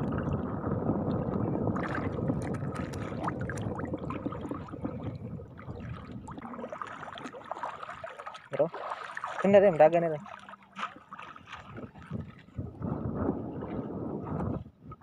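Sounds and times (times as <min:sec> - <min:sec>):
net splashing in water: 0:01.8 - 0:12.4.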